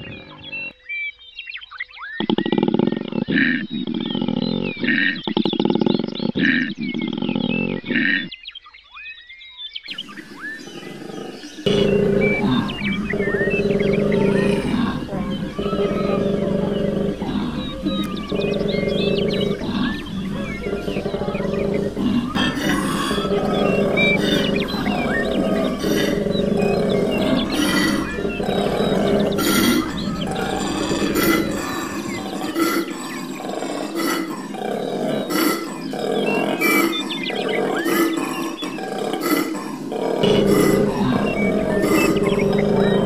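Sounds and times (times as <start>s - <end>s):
koala bellowing: 9.9s - 43.0s.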